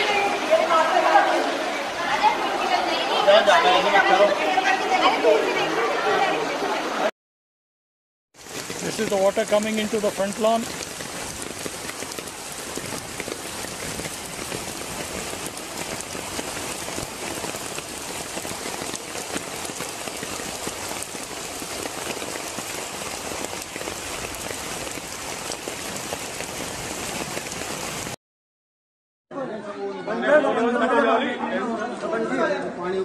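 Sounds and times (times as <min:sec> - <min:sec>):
floodwater rushing: 0:00.0 - 0:07.1, 0:08.4 - 0:28.2.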